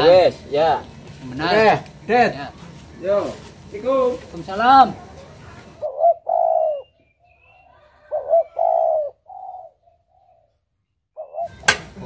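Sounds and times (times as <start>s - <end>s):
dove cooing: 5.7s - 10.6s, 11.2s - 12.0s
small bird chirping: 5.8s - 11.7s.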